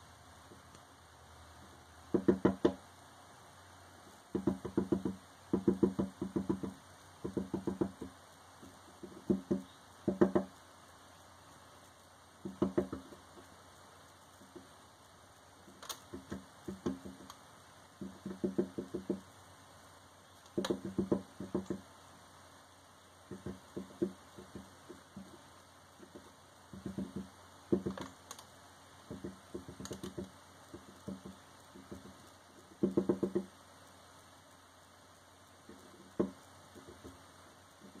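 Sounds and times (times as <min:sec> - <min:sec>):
bird pecking on plastic feeder: 0:12.4 - 0:13.5, 0:15.6 - 0:17.4, 0:18.0 - 0:19.3, 0:23.3 - 0:33.5.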